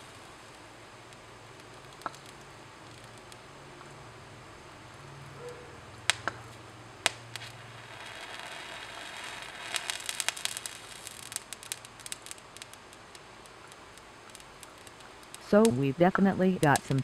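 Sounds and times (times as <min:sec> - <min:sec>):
hiss with small crackles: 0:00.0 - 0:17.0
sharp pops: 0:01.6 - 0:03.4, 0:06.0 - 0:17.0.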